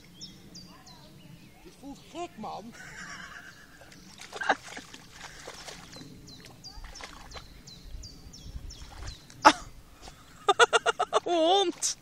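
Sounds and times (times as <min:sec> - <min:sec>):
water sloshing and splashing: 0:03.2 - 0:12.0.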